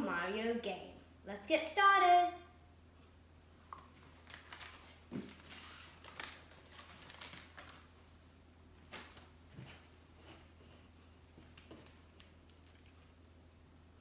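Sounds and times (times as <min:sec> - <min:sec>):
paper rustling: 0:03.9 - 0:07.9.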